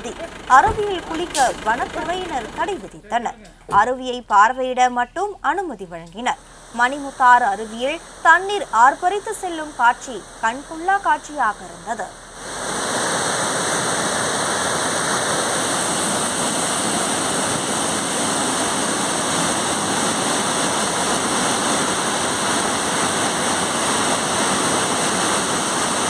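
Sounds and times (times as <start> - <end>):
floodwater rushing over rocks: 6.4 - 26.0.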